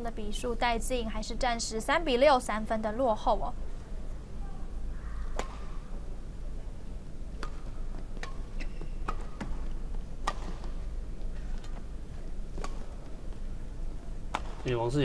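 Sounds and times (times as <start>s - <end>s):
low hum of hall: 0.0s - 15.0s
rackets striking shuttlecock: 5.2s - 6.0s, 7.3s - 11.9s, 12.5s - 13.4s, 14.3s - 14.7s.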